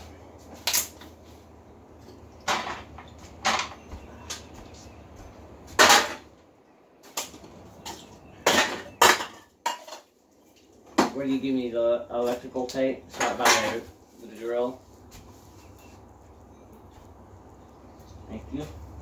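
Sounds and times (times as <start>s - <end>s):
sharp knocks and clatters: 2.0s - 4.5s, 5.7s - 6.4s, 7.0s - 10.1s.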